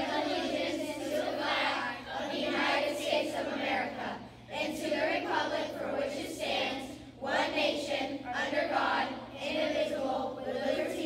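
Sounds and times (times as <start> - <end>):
children reciting in unison: 0.0 - 11.0.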